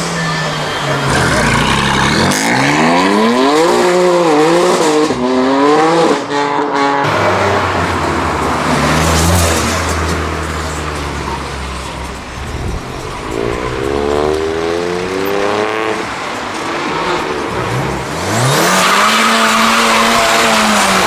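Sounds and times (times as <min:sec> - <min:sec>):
car engine revving: 0:00.9 - 0:21.0
car engine low drone: 0:07.3 - 0:18.6.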